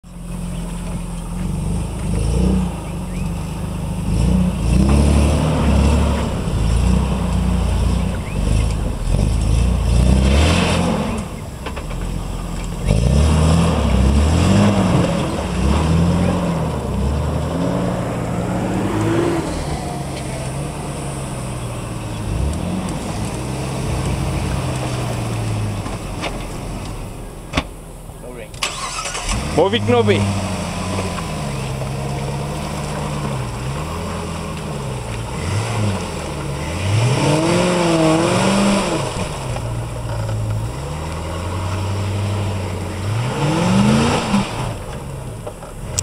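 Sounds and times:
pickup engine revving: 0:00.0 - 0:46.0.

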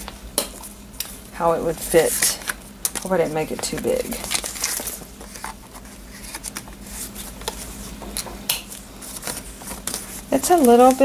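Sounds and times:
paper rustling: 0:02.1 - 0:08.0, 0:08.7 - 0:11.0.

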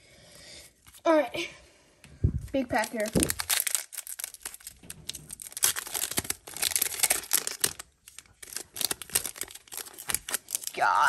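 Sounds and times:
wrapper crinkling and tearing: 0:02.7 - 0:11.0.

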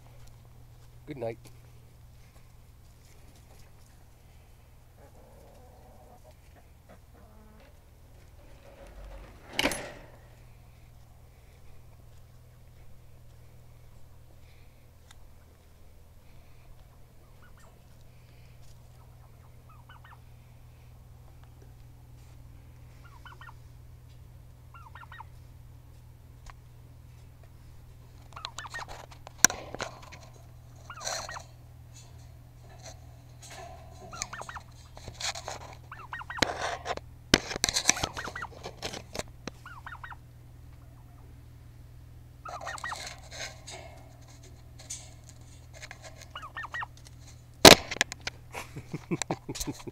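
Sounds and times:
turkeys calling: 0:15.2 - 0:20.4, 0:22.9 - 0:23.8, 0:24.7 - 0:25.4, 0:28.2 - 0:31.8, 0:32.7 - 0:37.0, 0:37.8 - 0:38.9, 0:39.5 - 0:41.4, 0:42.3 - 0:48.0.

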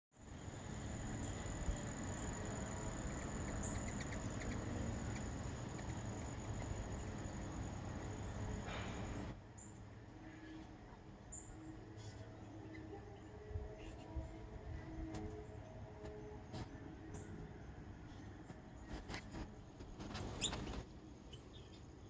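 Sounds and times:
high-pitched whine: 0:00.2 - 0:21.5
low outdoor rumble: 0:00.2 - 0:22.0.

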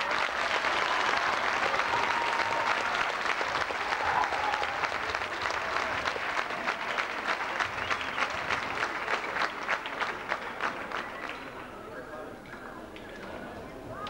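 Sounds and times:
crowd applauding: 0:00.0 - 0:11.8.

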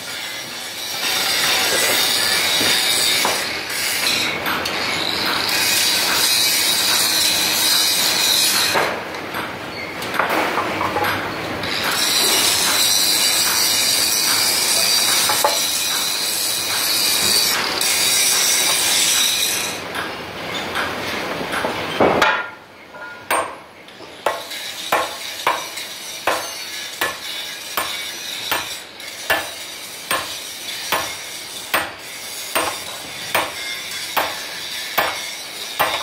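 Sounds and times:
loud mechanical running noise: 0:00.0 - 0:22.1.

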